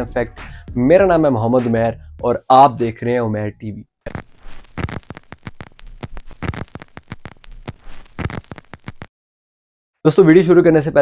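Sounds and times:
crackling clicks: 4.1s - 9.1s.

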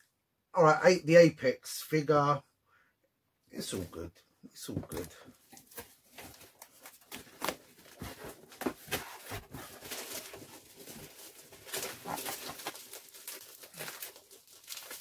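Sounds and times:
packaging rustling and crinkling: 5.0s - 15.0s.

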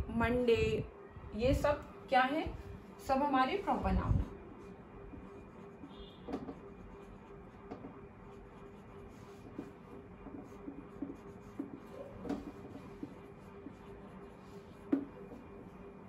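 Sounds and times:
marker writing on whiteboard: 4.5s - 16.0s.

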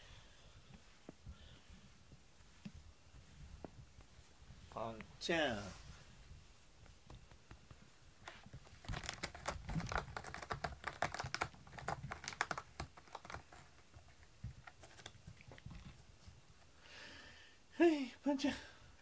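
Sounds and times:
cat scratching cardboard: 8.2s - 16.4s.

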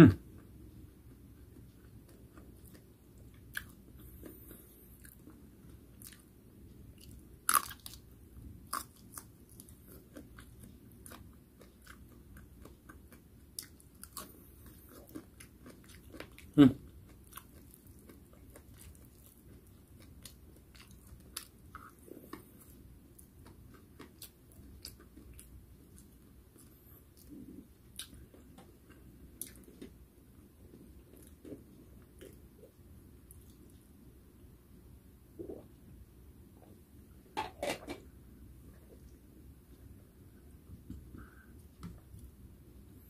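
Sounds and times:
person chewing crunchy food: 1.4s - 6.3s, 7.0s - 30.0s.

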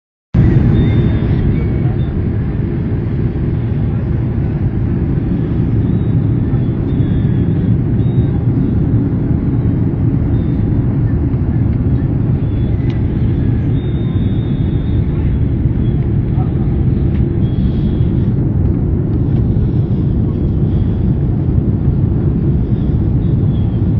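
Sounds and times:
airliner cabin rumble: 0.4s - 23.9s.

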